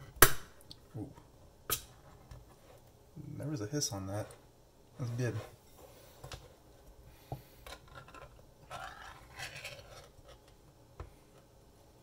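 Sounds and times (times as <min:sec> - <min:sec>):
thin metal scraping and tearing: 0:07.8 - 0:10.4.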